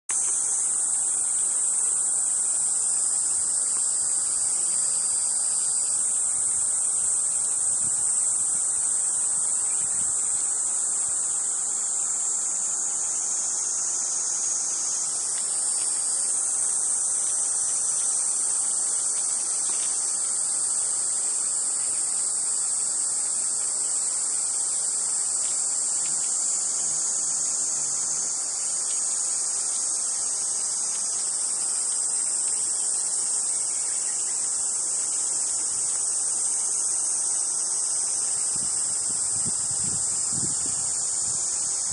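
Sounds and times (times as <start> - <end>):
cicadas singing: 0.1 - 41.9.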